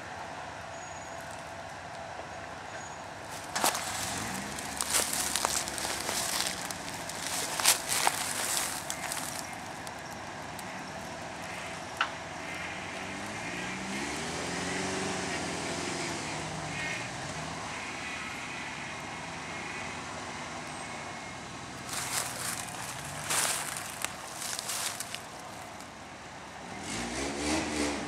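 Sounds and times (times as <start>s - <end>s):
truck engine climbing under load: 0.0s - 15.8s, 21.7s - 28.0s.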